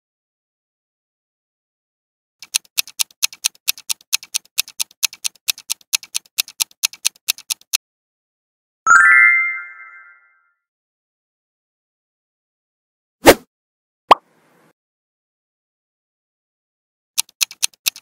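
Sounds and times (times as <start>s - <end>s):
clock ticking fast: 2.4s - 7.8s, 17.2s - 18.0s
bright chime: 8.9s - 10.4s.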